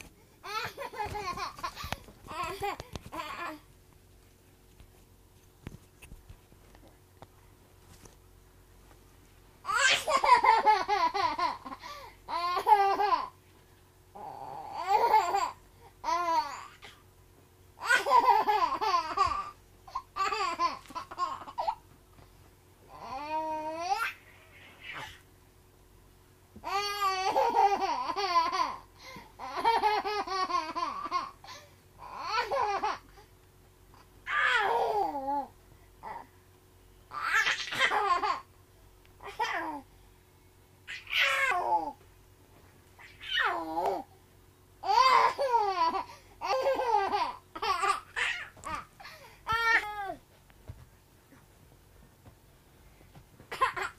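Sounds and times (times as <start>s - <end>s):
baby laughing: 0.4s - 3.6s, 9.7s - 13.4s, 14.2s - 17.0s, 17.8s - 21.8s, 26.7s - 28.8s, 29.4s - 31.4s, 37.1s - 38.5s, 40.9s - 42.0s, 44.8s - 50.2s, 53.5s - 53.9s.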